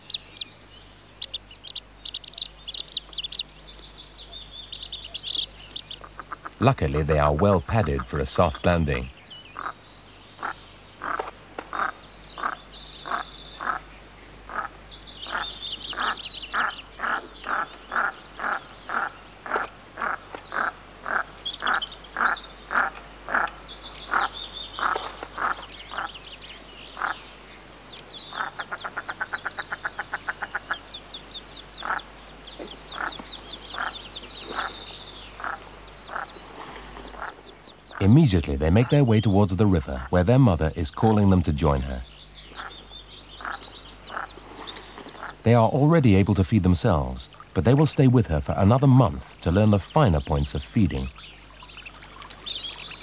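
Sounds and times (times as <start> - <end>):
ducklings peeping: 0.0 - 27.3, 28.0 - 53.0
duck calling: 9.5 - 9.8, 14.5 - 26.1, 27.0 - 27.2, 31.8 - 36.4, 37.1 - 38.1, 42.4 - 44.4.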